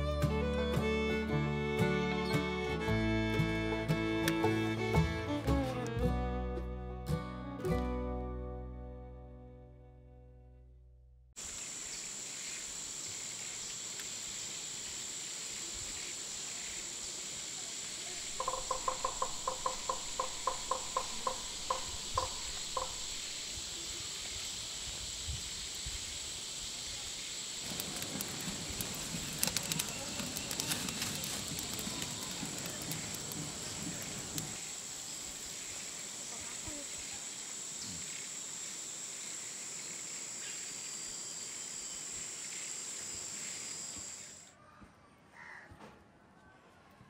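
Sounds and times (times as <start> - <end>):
high-pitched insect chorus: 11.4 - 44.5
straw and leaves crackling: 27.6 - 34.6.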